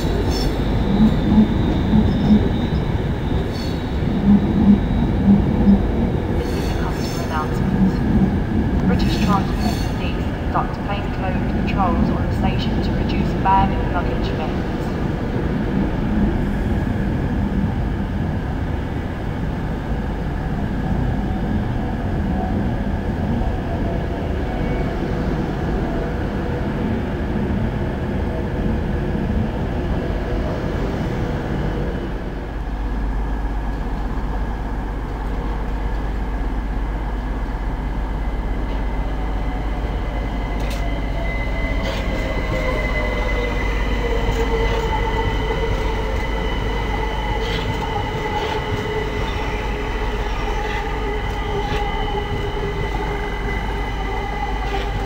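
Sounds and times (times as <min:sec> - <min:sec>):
train wheels squealing: 0:00.0 - 0:07.6, 0:09.1 - 0:10.2
train wheels rumbling on rails: 0:00.0 - 0:55.0.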